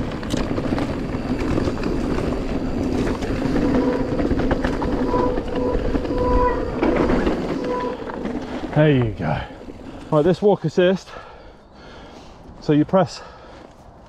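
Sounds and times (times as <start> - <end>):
bike rattling and knocking: 0.0 - 10.2
thin whine: 0.8 - 9.0.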